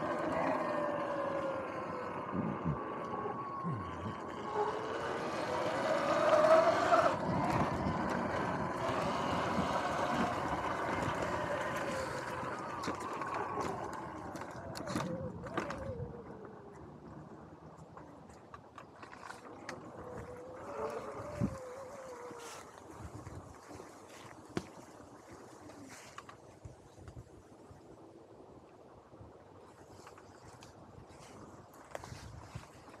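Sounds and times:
electric motorbike motor whine: 0.0s - 17.6s, 19.4s - 24.9s.

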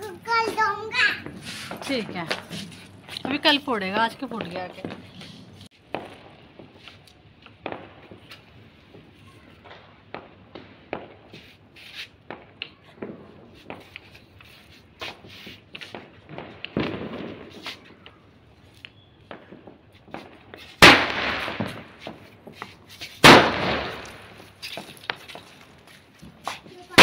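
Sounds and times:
loud firecracker bangs: 0.2s - 5.1s, 5.7s - 6.8s, 7.6s - 14.2s, 15.9s - 18.3s, 19.2s - 25.8s, 26.4s - 27.0s
small firecracker pops: 5.7s - 27.0s.

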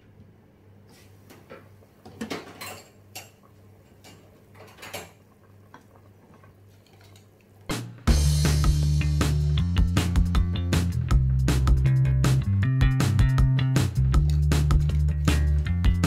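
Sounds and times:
loud background music: 7.7s - 16.0s.

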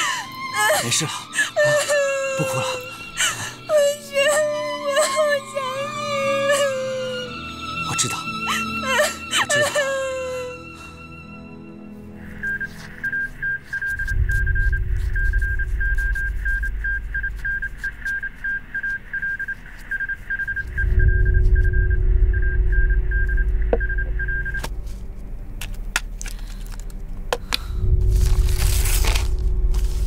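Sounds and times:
low rumbling drone: 11.4s - 30.0s
morse code beeps: 12.3s - 24.7s.

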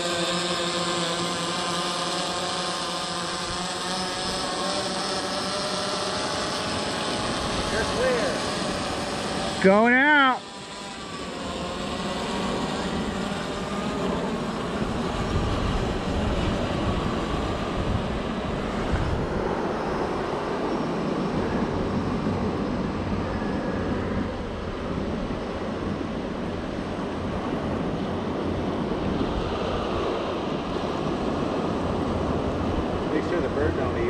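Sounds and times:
drone propellers whining: 0.0s - 34.0s
wind buffeting microphone: 14.5s - 34.0s.

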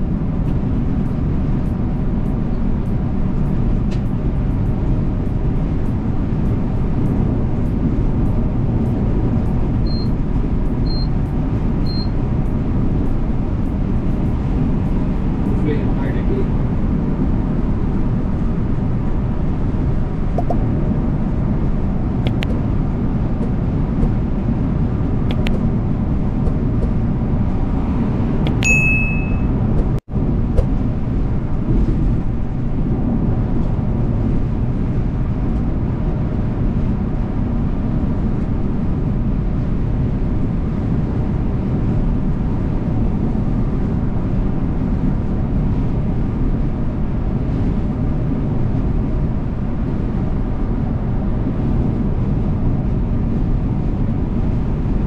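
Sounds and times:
coach engine and tyres drone: 0.0s - 55.0s
short high ding: 28.6s - 29.6s.

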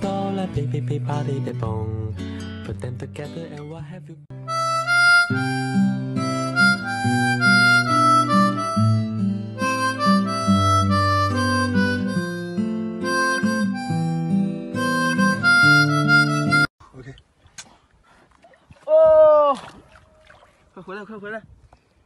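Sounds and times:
harmonica melody: 4.3s - 16.7s
held chords: 4.3s - 16.7s.

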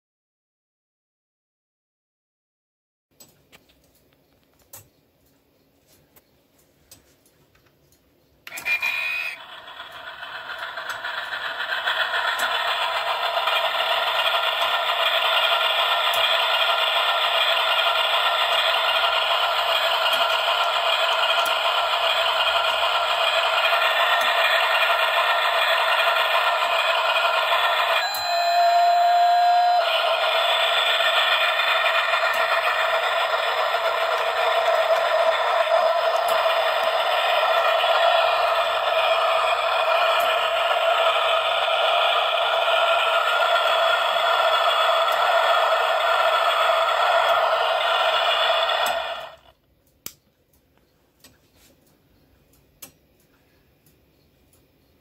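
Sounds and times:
held electronic tone: 8.5s - 9.5s, 25.6s - 31.2s
steam train running noise: 8.5s - 49.6s
train whistle from small speaker: 27.8s - 30.4s.

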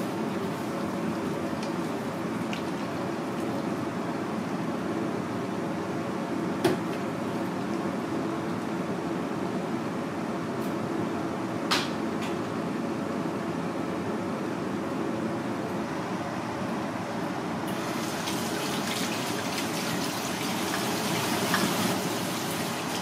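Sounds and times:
ventilation fan hum: 0.0s - 23.0s.

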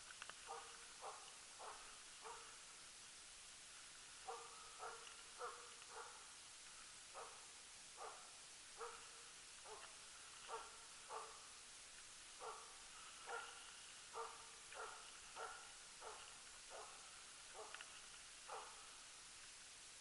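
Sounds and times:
steady hiss: 0.0s - 20.0s
dog barking: 0.5s - 2.6s, 4.2s - 6.3s, 7.1s - 11.5s, 12.4s - 18.9s.

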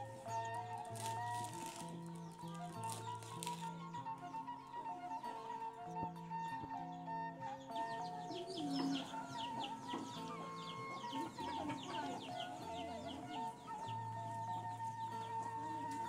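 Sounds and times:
plucked zither notes: 0.0s - 6.3s, 6.9s - 16.0s
bamboo flute melody: 0.0s - 16.0s
chickens clucking: 7.7s - 16.0s.

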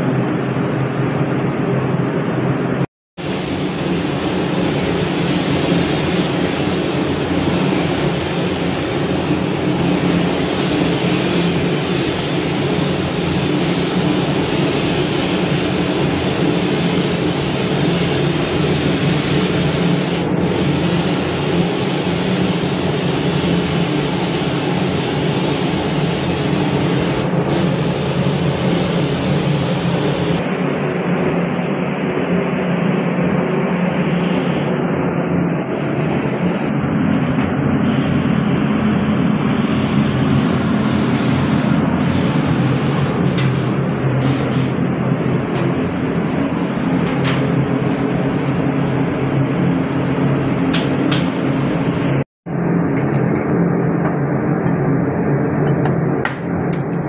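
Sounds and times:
spray gun air rushing: 3.2s - 34.8s, 35.7s - 36.8s, 37.8s - 44.9s.

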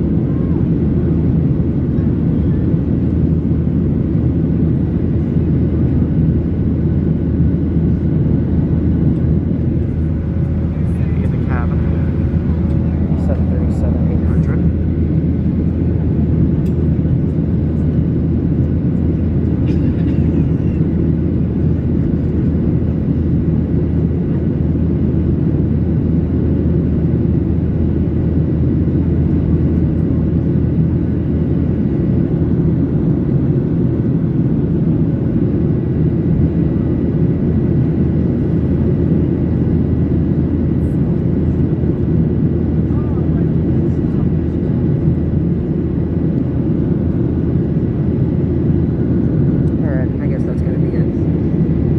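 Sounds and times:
aircraft engines rumbling: 0.0s - 51.9s
airflow over fuselage: 0.0s - 51.9s.

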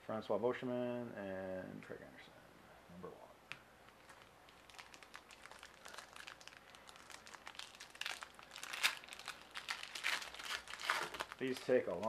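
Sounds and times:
foil wrapper crinkling and tearing: 3.9s - 12.0s.

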